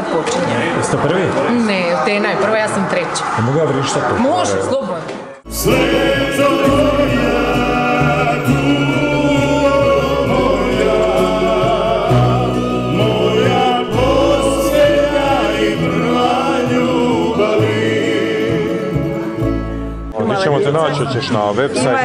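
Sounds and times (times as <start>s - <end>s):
bass line in long held notes: 5.5s - 20.1s
instrumental accompaniment: 5.5s - 20.1s
voices singing a folk song: 5.5s - 20.1s.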